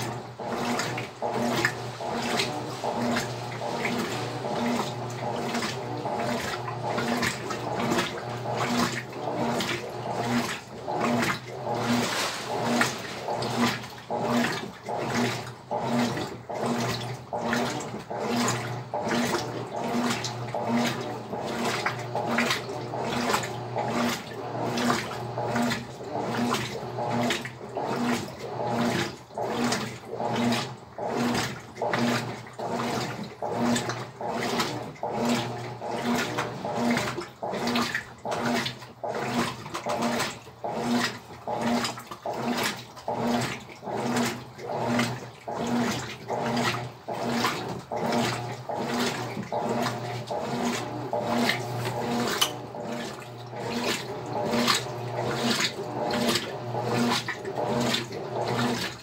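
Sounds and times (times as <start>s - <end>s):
motor hum: 0.0s - 59.0s
washing machine agitator swishing: 0.0s - 59.0s.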